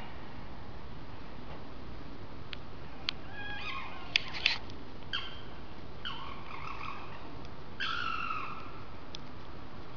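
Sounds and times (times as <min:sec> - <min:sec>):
animal screeching: 0:02.9 - 0:05.4, 0:06.0 - 0:08.6.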